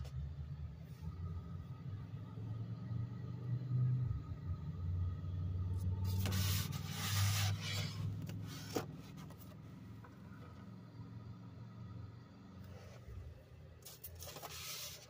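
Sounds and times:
handling noise rubbing and scraping: 6.0 - 9.6, 13.8 - 15.0.

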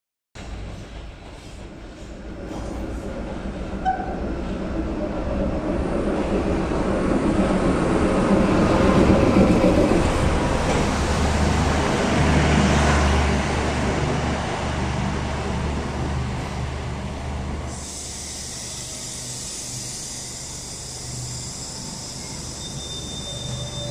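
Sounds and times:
train coaches rumbling on track: 0.4 - 23.9.

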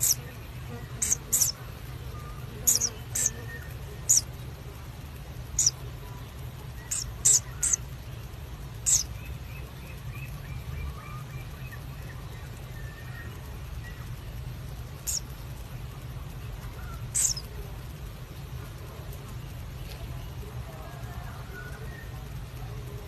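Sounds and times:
bird chick squeaks: 0.0 - 0.2, 1.0 - 1.6, 2.6 - 3.4, 5.6 - 5.8, 6.8 - 7.8, 8.8 - 9.1, 15.0 - 15.3, 16.8 - 17.5
soft bird peeps: 0.0 - 17.6
steady low hum: 0.0 - 23.0.

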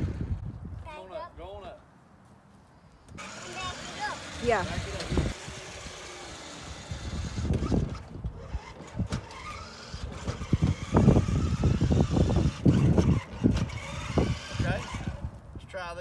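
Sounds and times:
toy truck rumbling on concrete: 0.0 - 0.4, 3.2 - 15.3
trailer rattling: 3.2 - 15.3.

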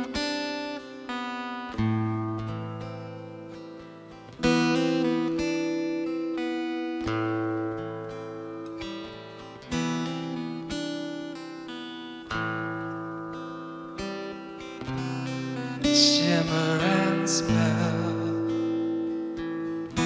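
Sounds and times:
acoustic guitar strumming: 0.0 - 20.0
person singing: 15.4 - 20.0.

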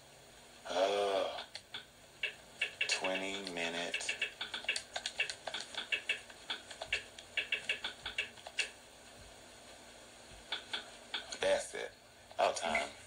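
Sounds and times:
typing clicks on keypad: 1.6 - 8.7.

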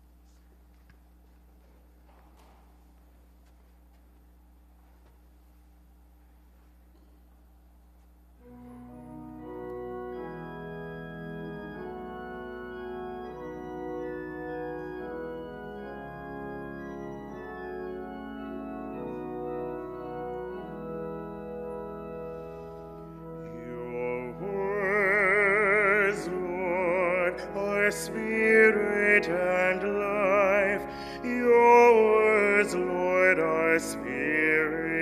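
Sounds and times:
organ playing sustained chords: 7.4 - 35.0.

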